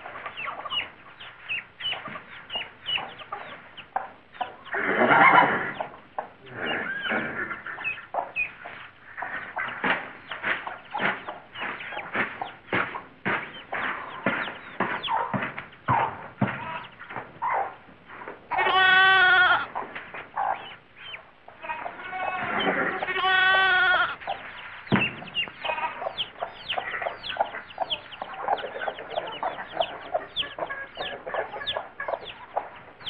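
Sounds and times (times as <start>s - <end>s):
chickens clucking: 0.0s - 33.0s
lamb bleating: 18.5s - 19.8s, 21.6s - 24.2s, 25.6s - 26.2s.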